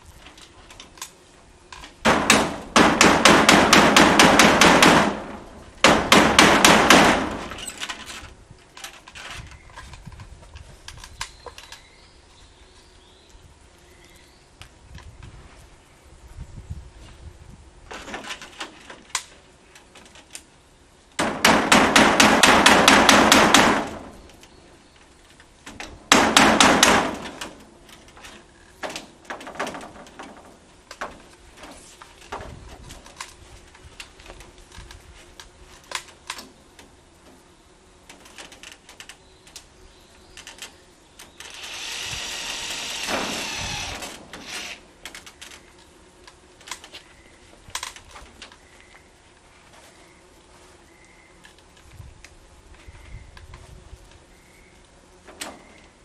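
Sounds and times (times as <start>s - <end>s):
impact driver rattling: 41.4s - 45.2s.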